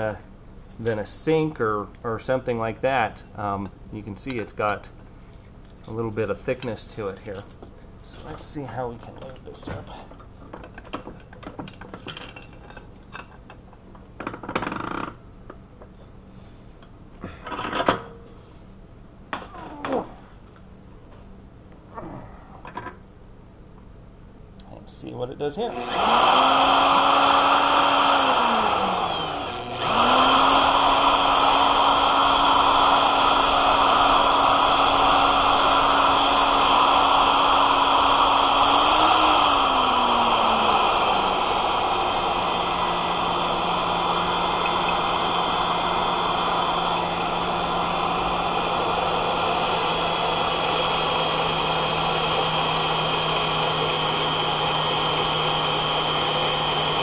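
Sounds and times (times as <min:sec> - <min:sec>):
drill bit cutting steel: 0:25.7 - 0:57.0
electric drill motor whine: 0:25.7 - 0:57.0.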